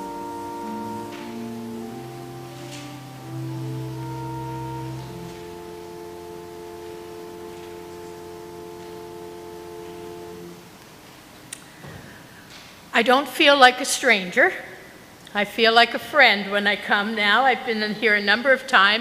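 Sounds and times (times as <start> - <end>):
organ music: 0.0 - 10.8.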